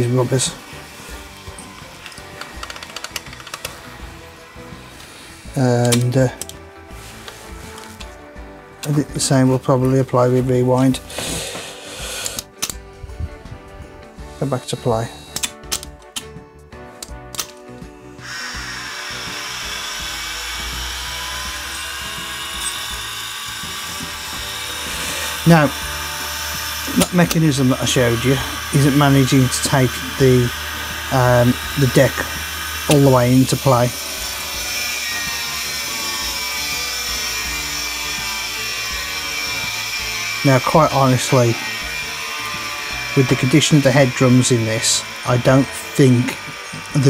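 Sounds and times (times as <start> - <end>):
vcr head motor whirring: 18.2 - 47.0.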